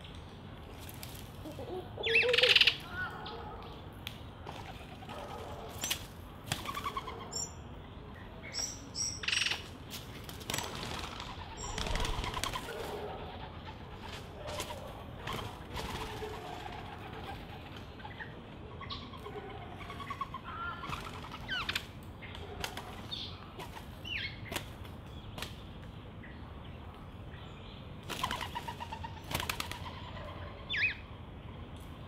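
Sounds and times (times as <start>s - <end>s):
wing flaps: 10.0s - 13.0s.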